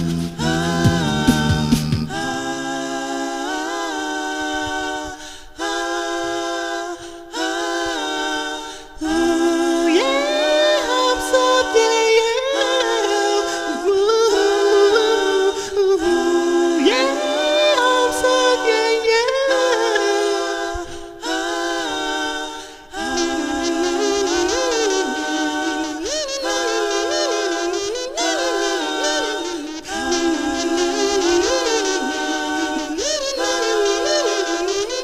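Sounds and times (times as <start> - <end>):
looped beatbox vocal synth lines: 0.0 - 2.3.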